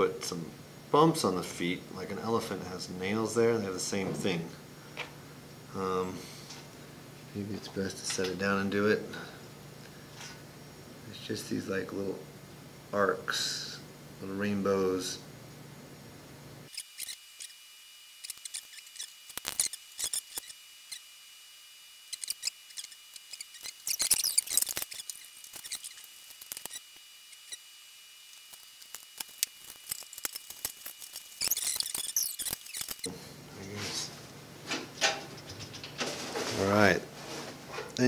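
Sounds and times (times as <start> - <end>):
wooden tool scratching clay: 28.5 - 33.1.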